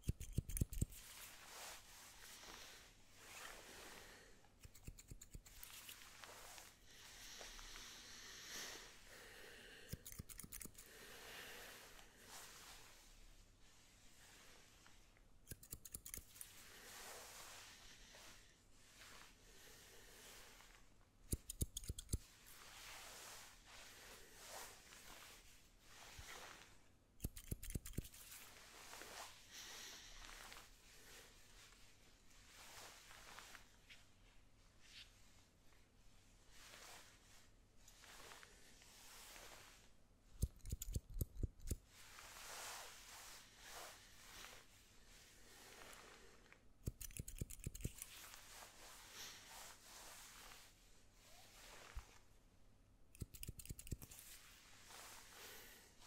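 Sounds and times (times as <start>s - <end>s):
scissors snipping: 0.0s - 1.0s, 4.6s - 6.0s, 9.9s - 10.9s, 15.5s - 16.4s, 21.3s - 22.2s, 27.2s - 28.3s, 40.4s - 41.8s, 46.8s - 48.1s, 53.1s - 54.2s.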